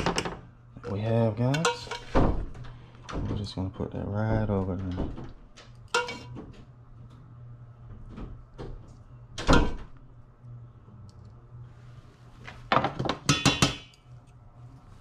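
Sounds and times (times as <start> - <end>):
low steady hum: 0.0 - 15.0
metal spoon clinking on saucepan: 5.9 - 6.3.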